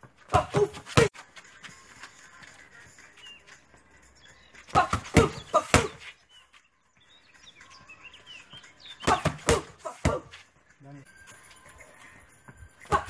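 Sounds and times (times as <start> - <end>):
boxing gloves hitting mitts: 0.3 - 1.1, 4.7 - 6.2, 9.0 - 10.4.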